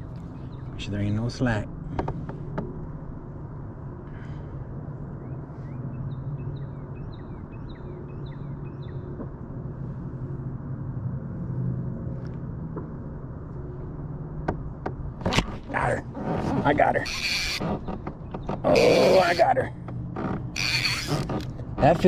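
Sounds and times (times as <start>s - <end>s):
steady low rumble: 0.0s - 22.0s
bird chirping: 5.2s - 9.1s.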